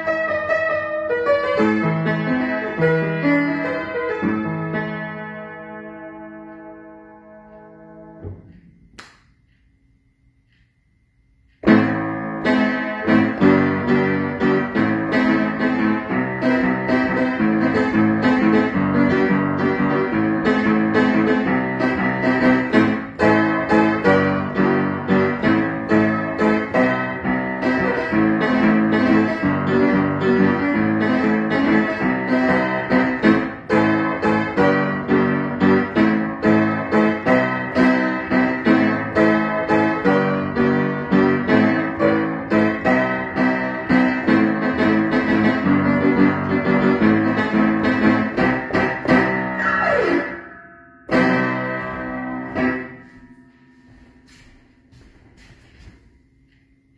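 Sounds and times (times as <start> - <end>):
acoustic piano playing: 0.0 - 9.0, 11.6 - 56.9.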